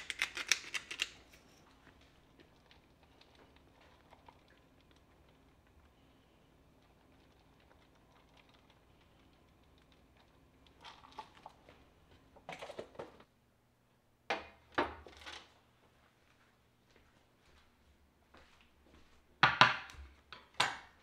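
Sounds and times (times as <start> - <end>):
grated cheese pattering: 0.0 - 6.0.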